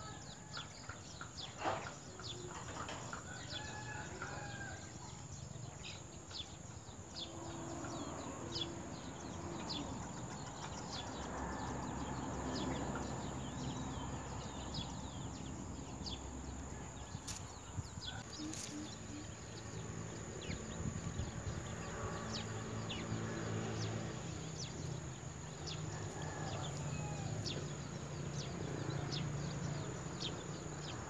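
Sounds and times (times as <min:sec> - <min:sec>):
distant rooster crowing: 0:02.8 - 0:05.2, 0:25.6 - 0:28.0
nestlings chirping: 0:17.1 - 0:19.8
rustling: 0:17.2 - 0:17.5, 0:18.2 - 0:19.0.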